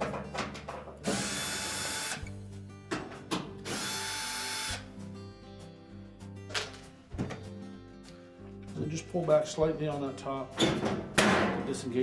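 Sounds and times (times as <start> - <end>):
cordless drill motor whirring: 1.1 - 2.2, 3.7 - 4.8.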